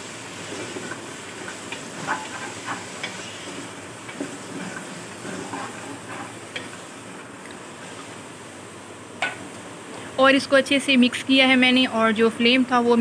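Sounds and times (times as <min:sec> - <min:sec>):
meat and onions sizzling: 0:00.0 - 0:09.5
wooden spoon scraping a pot: 0:00.4 - 0:06.8.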